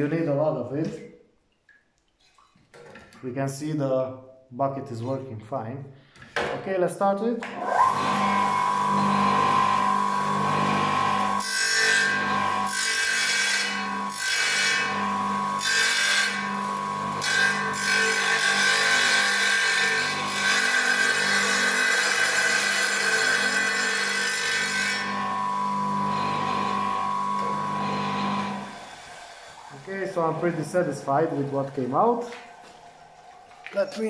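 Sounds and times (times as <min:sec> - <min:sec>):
tile saw motor whine: 0:07.6 - 0:34.0
saw blade grinding tile: 0:07.8 - 0:32.8.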